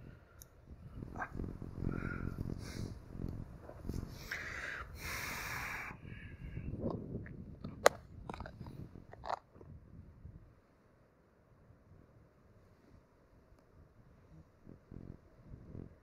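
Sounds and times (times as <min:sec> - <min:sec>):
crunching crumbly groundbait: 0:07.6 - 0:09.7.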